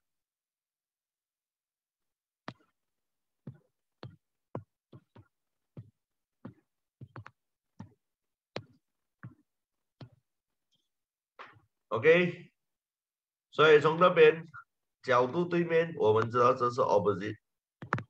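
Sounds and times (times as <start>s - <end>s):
stylus tapping on drawing tablet: 3.5s - 8.0s, 17.8s - 18.0s.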